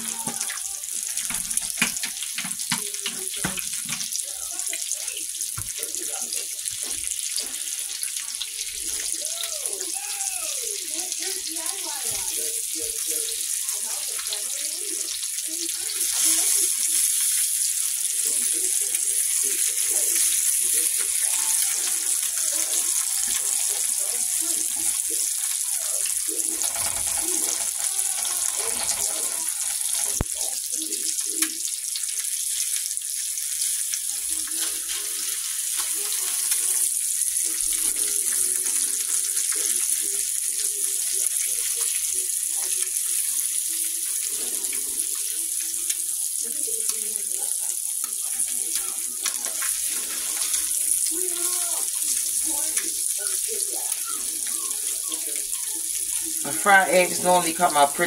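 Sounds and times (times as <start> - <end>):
eggs sizzling in a skillet: 0.0 - 58.0
spatula turning eggs: 13.7 - 30.5, 47.6 - 58.0.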